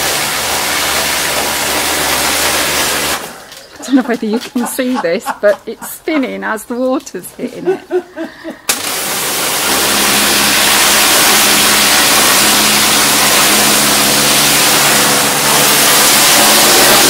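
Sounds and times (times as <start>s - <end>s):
high-pressure water jet hissing: 0.0s - 4.0s, 8.7s - 17.0s
pump motor humming: 0.0s - 4.1s, 8.7s - 17.0s.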